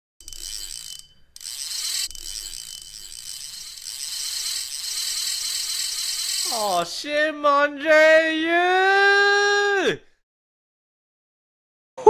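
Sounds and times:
high-pitched mechanical ratcheting: 0.2 - 6.9.

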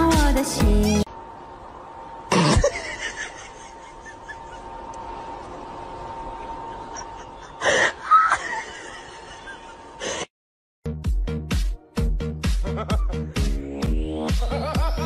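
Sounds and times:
faint steady hum: 0.0 - 10.3.

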